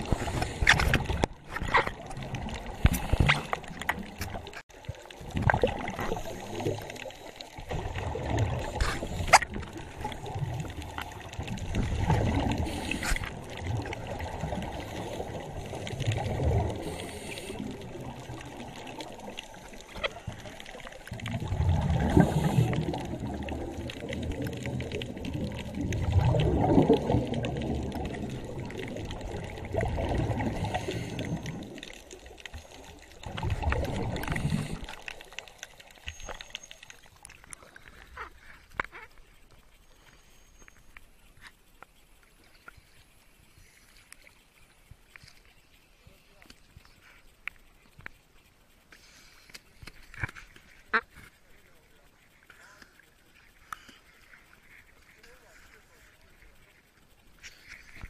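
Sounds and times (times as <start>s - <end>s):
underwater scuba regulator bubbling: 0.0s - 41.5s.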